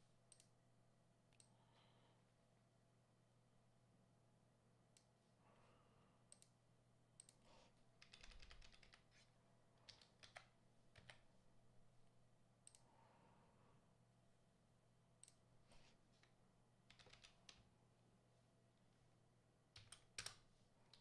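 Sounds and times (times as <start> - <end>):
mouse clicks: 12.6 - 12.9.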